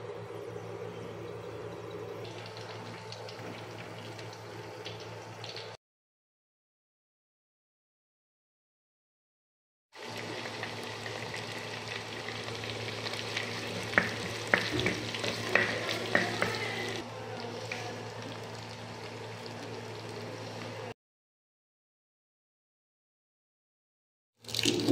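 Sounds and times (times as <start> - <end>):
food sizzling in hot oil: 10.0 - 20.9
spoon stirring and knocking pot: 13.9 - 16.7.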